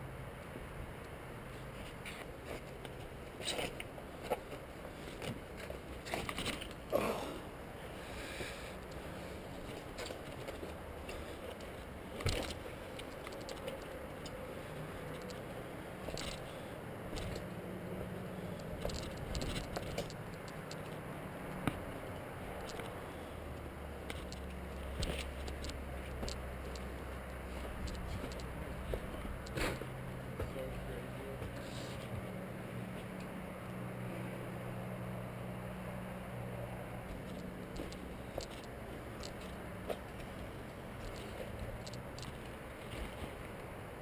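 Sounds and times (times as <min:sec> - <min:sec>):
steady low hum: 0:00.0 - 0:44.0
steady low rumble: 0:00.0 - 0:44.0
footsteps on gritty ground: 0:23.6 - 0:32.3, 0:37.1 - 0:43.5.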